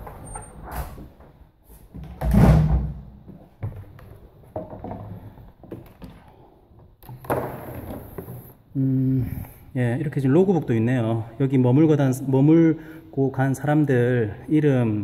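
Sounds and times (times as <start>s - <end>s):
door thud: 2.1s - 3.1s.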